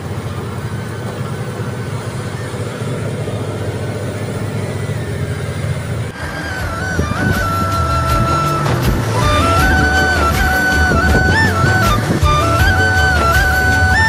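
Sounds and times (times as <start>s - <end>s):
truck engine and road noise: 0.0s - 14.0s
music: 6.1s - 14.0s.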